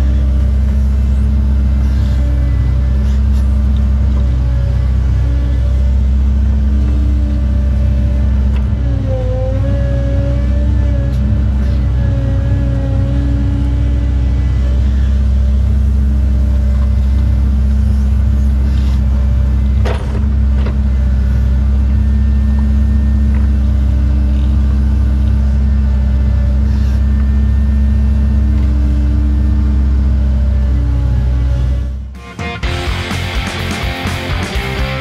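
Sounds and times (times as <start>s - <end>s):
excavator diesel engine: 0.0s - 35.0s
higher hum: 32.1s - 35.0s.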